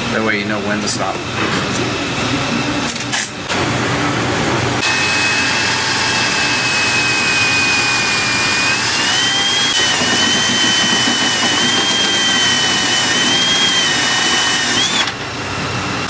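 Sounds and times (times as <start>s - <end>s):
cordless drill motor whine: 4.8s - 15.2s.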